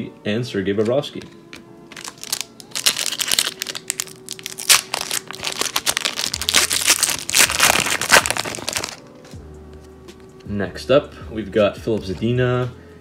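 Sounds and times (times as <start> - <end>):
foil wrapper tearing and crinkling: 1.9 - 9.0.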